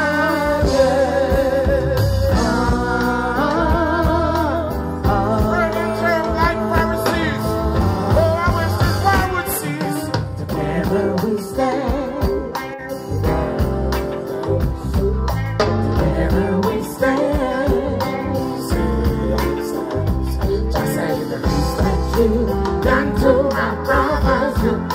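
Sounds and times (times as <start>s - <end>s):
heavy bass line: 0.0s - 24.9s
live reggae band playing: 0.0s - 24.9s
man singing into a microphone: 0.0s - 24.9s.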